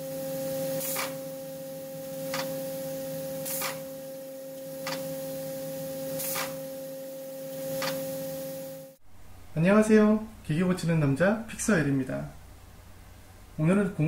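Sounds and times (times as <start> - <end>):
industrial machine humming: 0.0 - 9.1
short hiss: 6.2 - 6.6.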